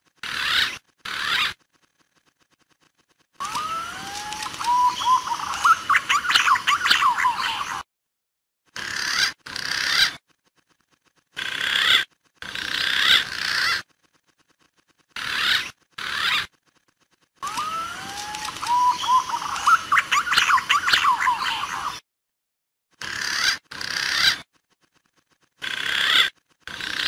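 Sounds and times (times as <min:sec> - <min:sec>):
recorded pigeon calls: 0:03.4 - 0:07.8, 0:17.4 - 0:22.0, 0:25.6 - 0:27.0.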